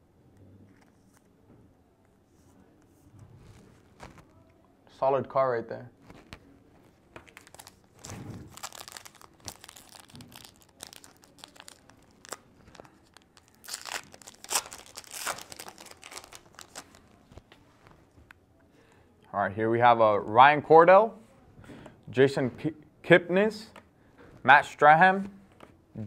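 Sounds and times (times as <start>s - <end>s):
card pack wrapper crinkling and tearing: 7.2s - 17.5s.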